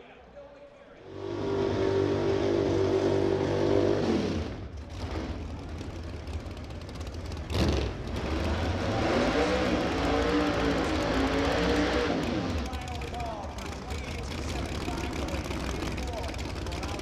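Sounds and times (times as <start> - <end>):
car engine revving high: 1.1 - 5.3, 7.5 - 12.7.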